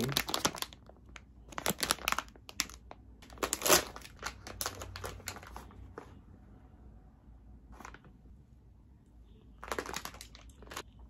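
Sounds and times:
plastic candy bag crinkling: 0.0 - 5.8, 9.6 - 10.9.

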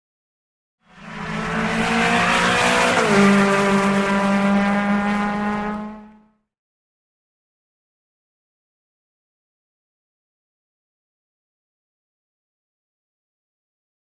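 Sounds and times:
race car engine at high revs: 0.9 - 6.3.

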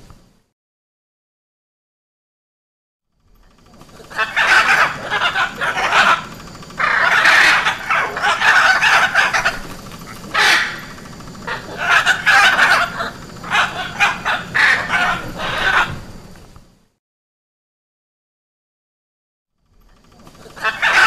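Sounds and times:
macaw calls: 3.5 - 16.3, 20.0 - 21.0.

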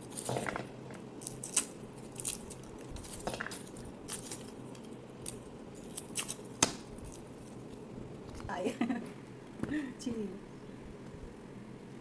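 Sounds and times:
garlic skins crackling: 0.0 - 8.7.

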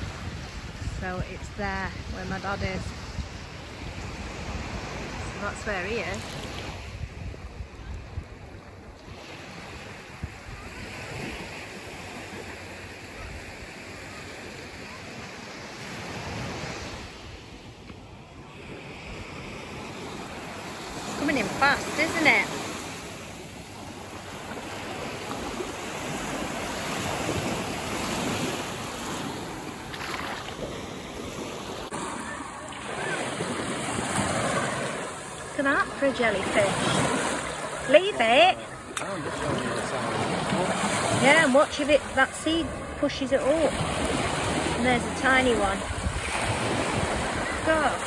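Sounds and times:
wind buffeting microphone: 0.0 - 9.0, 24.9 - 48.0
waves washing onto beach: 0.0 - 48.0.

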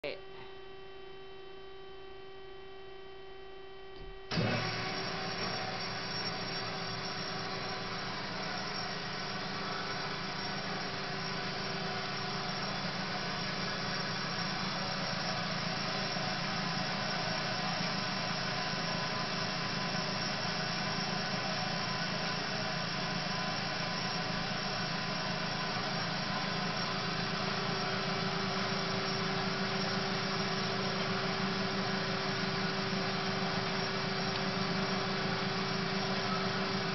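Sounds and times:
steady electric hum: 0.0 - 4.3
bandsaw motors running: 4.3 - 36.9.

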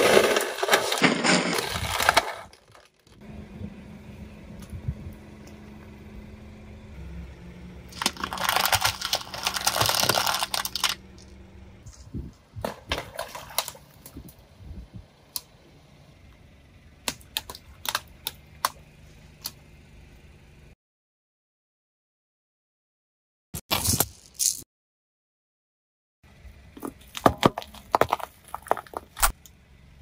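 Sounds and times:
tyre crunching brittle objects: 0.0 - 3.2, 7.9 - 12.0, 23.7 - 24.6, 26.9 - 29.4
low hum: 3.1 - 20.8
sharp cracks and clicks: 7.9 - 11.0.

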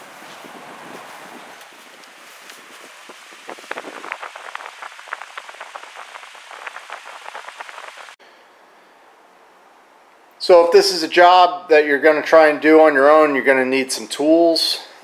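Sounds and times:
sharp clicks and crackles: 3.5 - 8.2.

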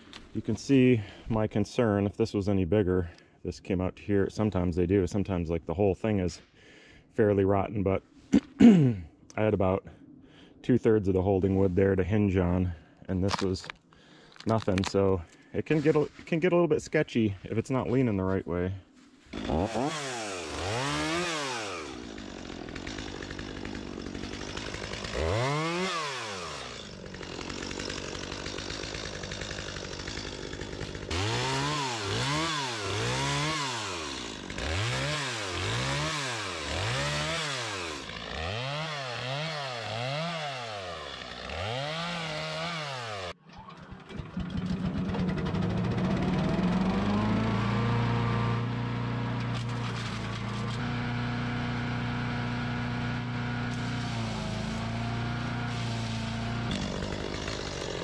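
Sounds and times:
wood chipper engine running: 19.2 - 58.0
chainsaw revving: 19.3 - 58.0.

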